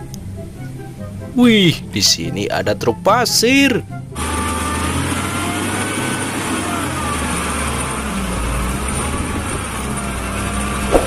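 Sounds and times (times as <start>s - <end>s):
diesel engine running: 0.0s - 11.0s
hydraulic hoist tipping: 4.2s - 11.0s.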